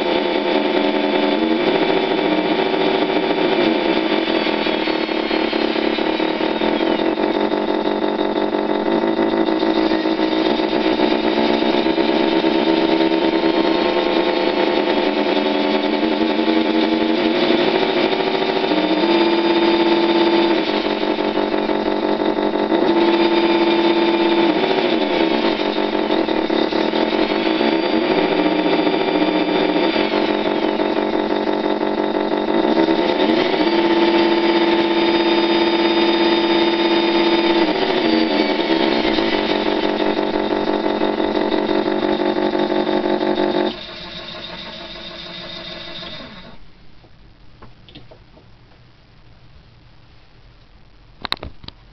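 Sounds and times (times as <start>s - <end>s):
electronic engine sound idling: 0.0s - 47.1s.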